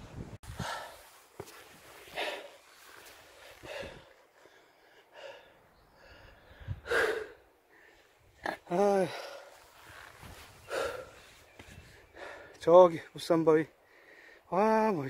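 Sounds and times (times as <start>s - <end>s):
person breathing hard: 0.5s - 8.2s, 9.0s - 12.6s, 13.8s - 14.5s.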